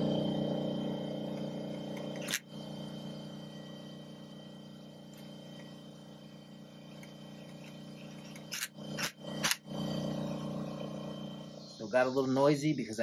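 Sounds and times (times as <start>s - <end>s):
air compressor humming: 0.0s - 13.0s
impact driver bursts: 1.4s - 2.6s, 8.2s - 9.8s.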